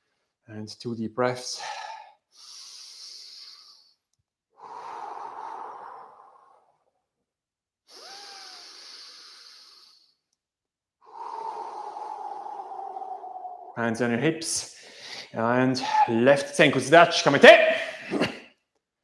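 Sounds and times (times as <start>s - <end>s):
man breathing deeply: 1.5s - 4.0s, 4.6s - 6.9s, 7.9s - 10.2s, 11.0s - 13.8s, 14.6s - 16.1s.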